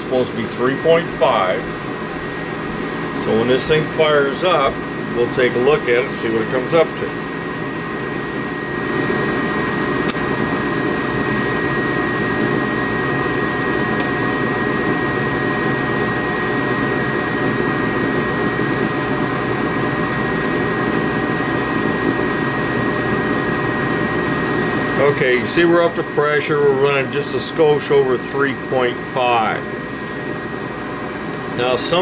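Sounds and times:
furnace blower rushing: 0:00.0 - 0:32.0
burners lighting: 0:08.8 - 0:15.1.

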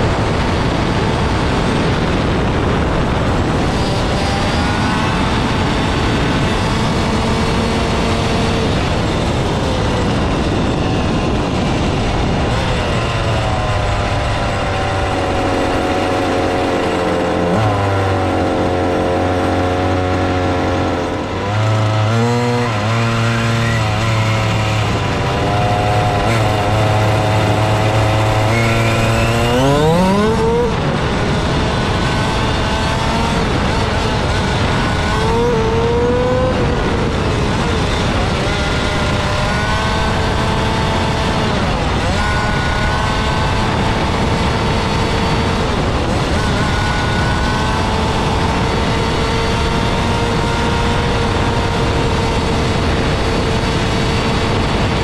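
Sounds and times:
road noise: 0:00.0 - 0:55.0
rc car motor revving: 0:26.1 - 0:30.8.

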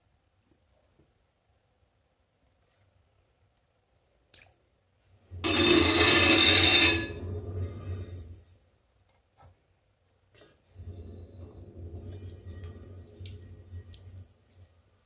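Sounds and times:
rasping scrape on wheel head: 0:05.4 - 0:08.4.

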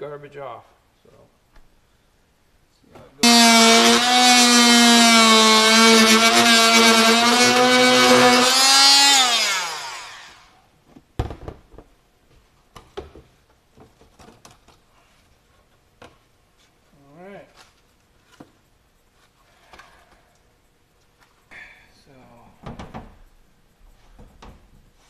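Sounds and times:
power cutting tool whining: 0:03.2 - 0:10.6.

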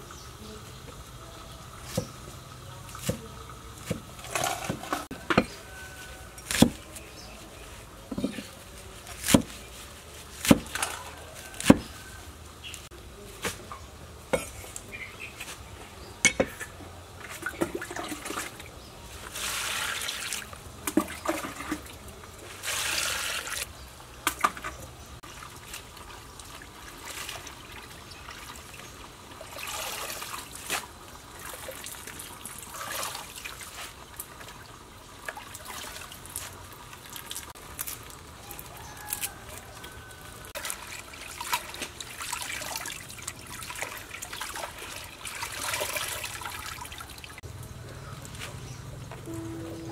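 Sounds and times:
leaves swished in water: 0:17.3 - 0:23.7, 0:25.2 - 0:47.4.

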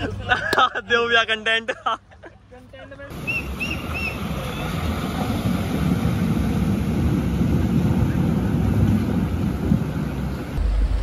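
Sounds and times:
wind buffeting microphone: 0:03.1 - 0:11.0
vehicle engine running: 0:10.5 - 0:11.0
water rushing and splashing: 0:10.5 - 0:11.0.

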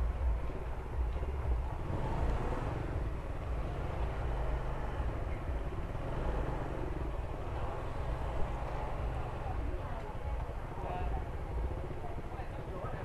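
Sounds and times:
scooter engine rumble: 0:00.0 - 0:13.0.

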